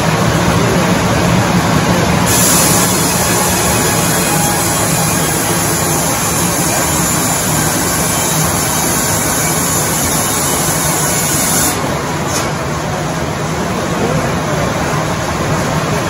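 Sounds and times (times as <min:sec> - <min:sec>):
sawmill running: 0:00.0 - 0:14.9
high hiss: 0:02.2 - 0:12.5.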